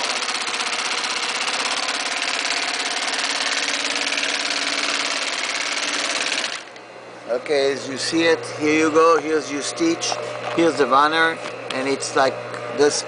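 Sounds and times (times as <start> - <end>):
sewing machine stitching: 0.0 - 6.8.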